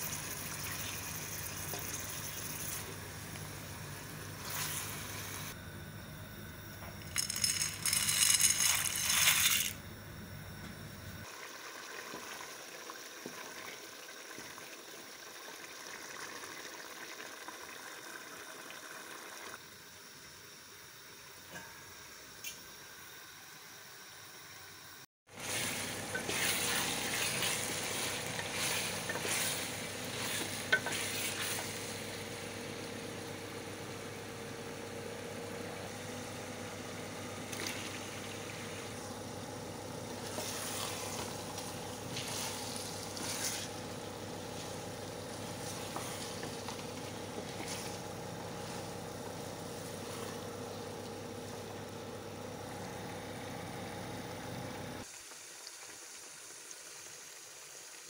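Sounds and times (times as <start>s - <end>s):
faint steady hum: 0.0s - 55.1s
meat sizzling in a pot: 11.2s - 20.2s, 25.3s - 34.0s, 35.0s - 58.0s.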